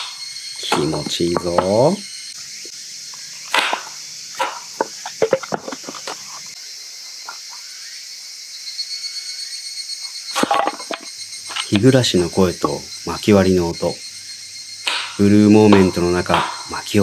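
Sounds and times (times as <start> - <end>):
cicadas chorus: 0.0 - 17.0
firewood splitting cracks: 3.5 - 6.2, 10.4 - 12.0, 14.9 - 16.8.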